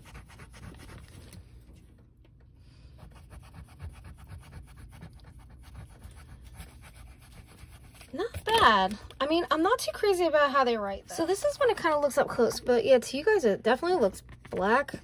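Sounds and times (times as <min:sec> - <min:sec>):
eraser scrubbing on paper: 0:00.0 - 0:01.2, 0:03.0 - 0:08.5.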